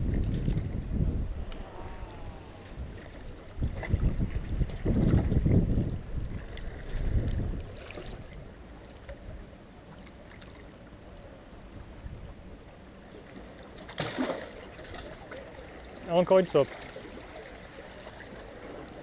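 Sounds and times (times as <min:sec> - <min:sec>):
wind rumbling on microphone: 0:00.0 - 0:10.0, 0:10.8 - 0:13.2.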